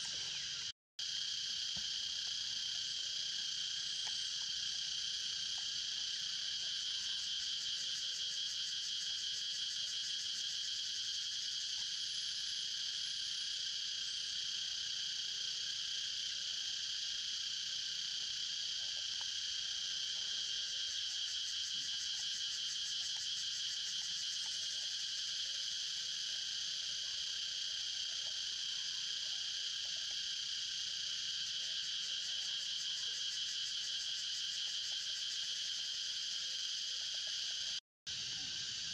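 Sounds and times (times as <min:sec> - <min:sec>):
insects trilling: 0:00.0 - 0:38.9.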